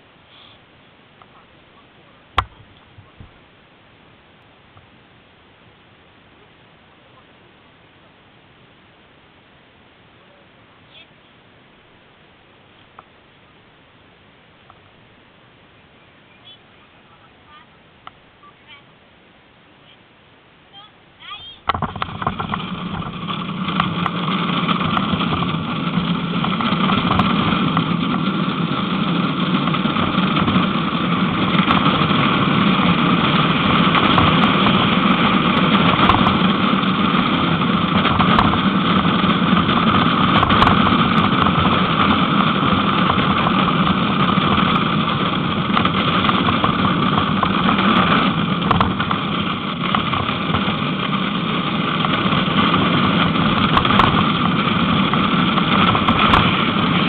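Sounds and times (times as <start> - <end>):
hard wheels rolling on asphalt: 0.0 - 9.2, 21.2 - 57.0
cart knocks: 2.4 - 3.4, 21.7 - 57.0.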